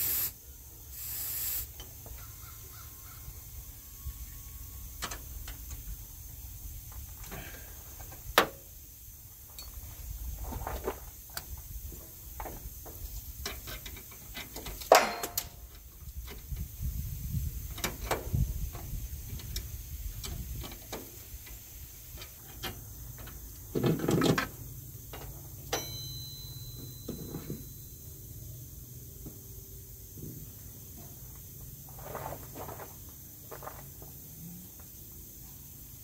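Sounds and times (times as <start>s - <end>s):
tools and metal parts clinking: 13.4s - 15.8s, 25.1s - 28.1s
sharp metal clank: 14.9s - 15.6s, 25.7s - 28.0s
thin ringing tone: 25.6s - 28.6s.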